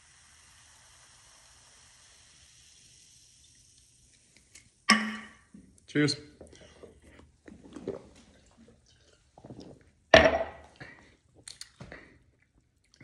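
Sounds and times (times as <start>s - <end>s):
gulping soda: 6.4s - 10.1s.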